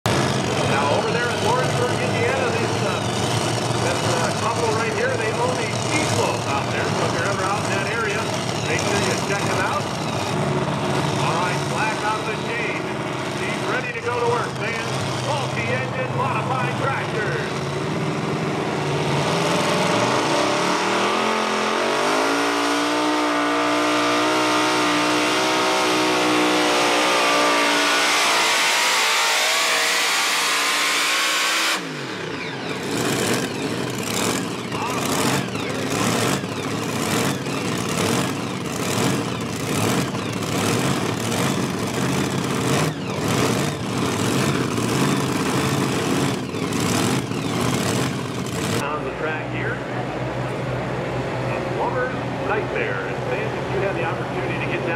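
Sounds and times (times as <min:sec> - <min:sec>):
uneven engine rumble: 0:00.0 - 0:30.4, 0:31.8 - 0:54.9
tractor engines at full throttle: 0:00.0 - 0:54.9.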